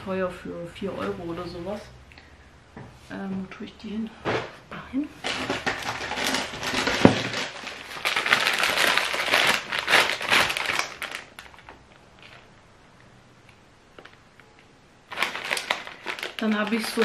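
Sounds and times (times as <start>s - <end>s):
plastic bag crinkling: 5.2s - 12.5s, 15.1s - 17.0s.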